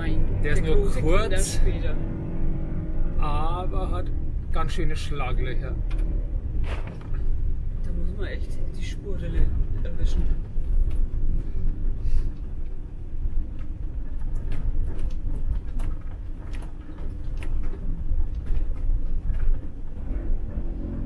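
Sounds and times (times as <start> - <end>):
vehicle driving on gravel road: 0.0 - 21.0
clicks and knocks from road: 5.8 - 7.6, 9.4 - 21.0.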